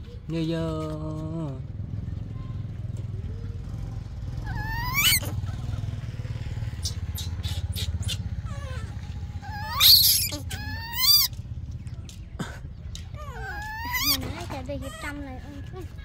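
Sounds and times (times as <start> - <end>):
low engine hum: 0.0 - 16.0
baby monkey screaming: 4.4 - 5.5, 6.7 - 11.3, 13.2 - 15.2.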